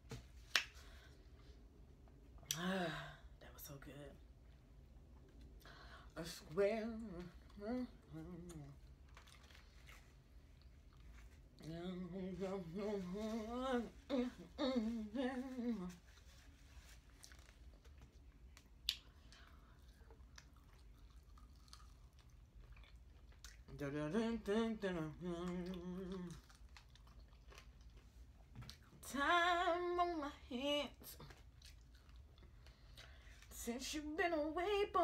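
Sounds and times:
chewing: 8.4s - 11.7s, 17.1s - 23.8s, 25.4s - 28.9s, 31.2s - 33.2s
woman humming: 11.8s - 16.0s.

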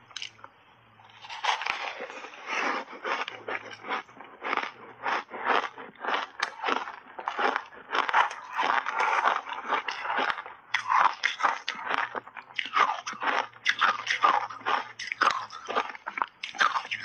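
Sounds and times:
ice crunching being chewed: 0.1s - 17.0s.

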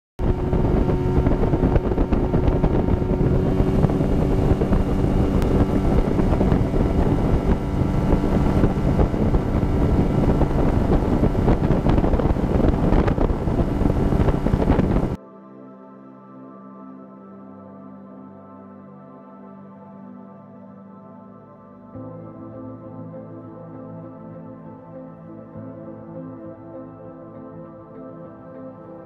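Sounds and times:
outboard motor running: 0.2s - 15.2s
wind buffeting microphone: 0.2s - 15.2s.

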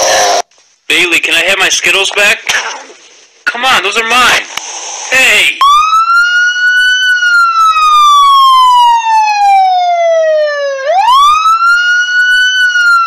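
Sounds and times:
siren wailing: 5.6s - 13.0s.

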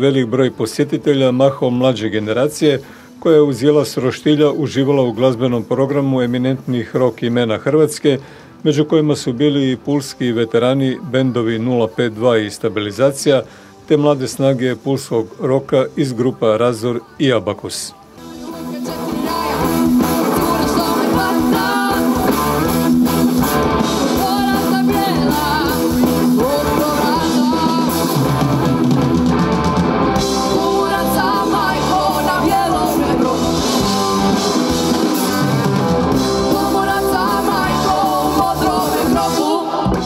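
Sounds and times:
electric guitars: 17.9s - 40.0s
drum kit: 18.2s - 40.0s
woman singing: 18.3s - 22.4s, 24.0s - 28.2s, 30.4s - 33.8s, 36.4s - 40.0s.

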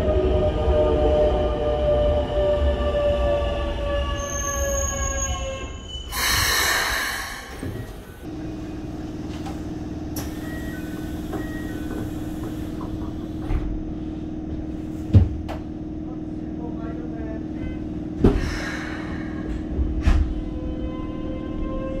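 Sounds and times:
train inverter whine: 0.0s - 22.0s
air hiss: 6.1s - 7.8s.

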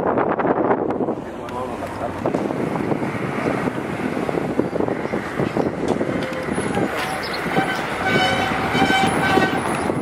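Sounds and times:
car road and engine noise: 0.0s - 10.0s
vehicle horn: 7.4s - 10.0s.

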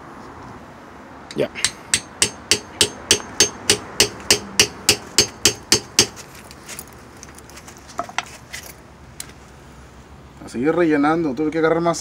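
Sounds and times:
hammer beating steel rod: 1.3s - 6.2s.

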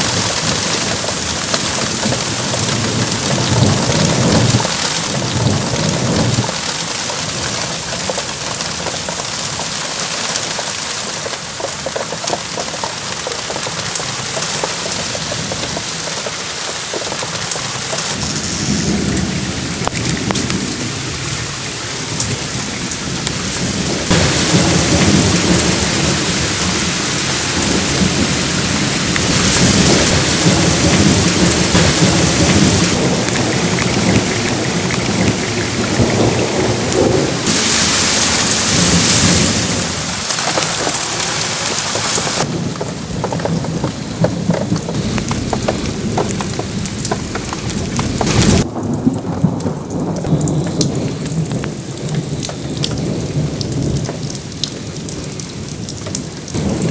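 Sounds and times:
rolling thunder: 0.0s - 8.1s, 18.1s - 55.9s, 56.5s - 56.9s
torrential rain hissing: 0.0s - 56.9s.

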